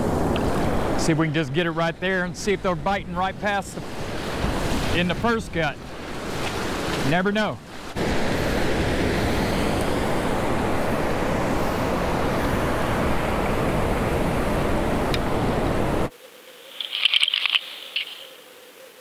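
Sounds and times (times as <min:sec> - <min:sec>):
surf: 0:00.0 - 0:16.1
wind on microphone: 0:02.6 - 0:07.0, 0:07.6 - 0:16.1
high crackling and clicks: 0:16.8 - 0:18.3.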